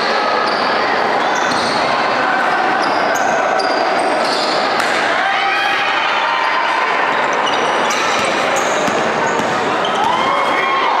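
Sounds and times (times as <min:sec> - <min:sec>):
echoing crowd hubbub: 0:00.0 - 0:11.0
sneakers squeaking: 0:00.3 - 0:05.0, 0:07.1 - 0:10.6
ball bouncing on hardwood court: 0:07.9 - 0:10.3.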